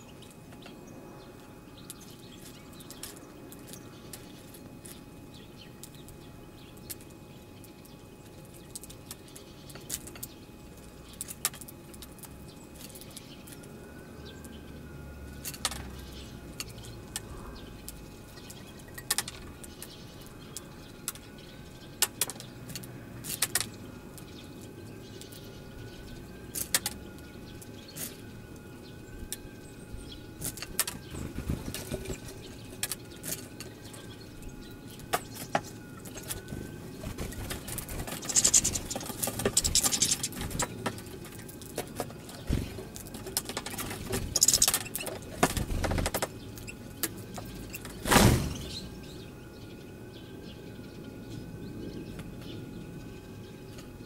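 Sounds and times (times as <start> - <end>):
finches chirping: 23.3 - 41.2, 42.1 - 53.9
thin wavering tone: 23.8 - 41.6.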